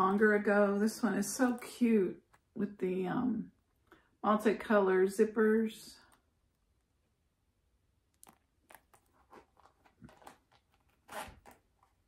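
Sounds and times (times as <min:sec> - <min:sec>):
clicks and rustles of accessories: 0:08.1 - 0:12.0.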